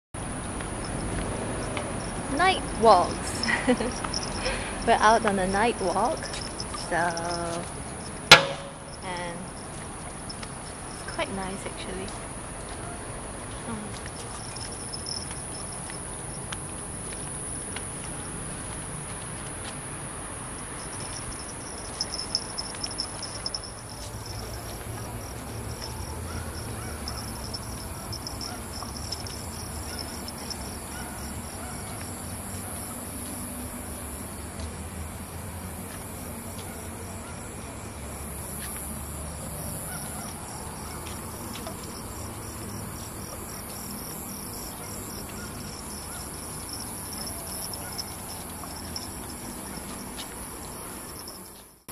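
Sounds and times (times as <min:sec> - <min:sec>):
pulsing insect chirp: 0:00.2 - 0:12.0, 0:13.6 - 0:51.9
insects trilling: 0:00.2 - 0:12.5, 0:13.2 - 0:51.9.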